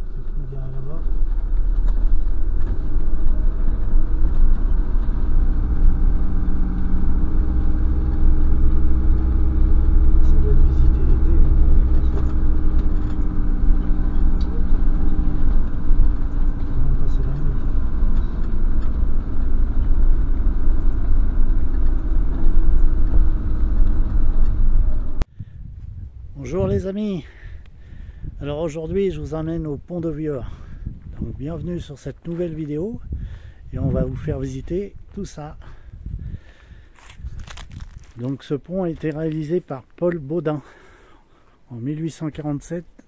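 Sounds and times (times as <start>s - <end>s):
van engine drone: 0.0s - 25.4s, 32.2s - 38.2s.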